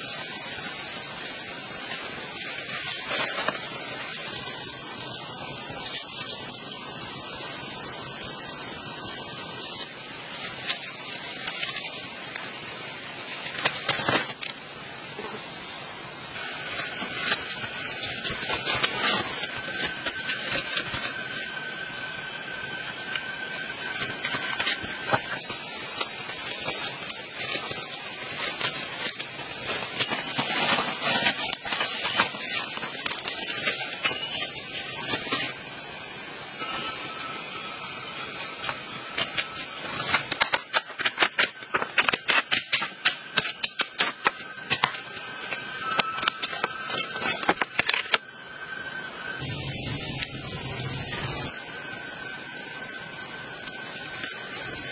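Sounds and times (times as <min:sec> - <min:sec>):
insect drone: 0:00.0 - 0:54.9.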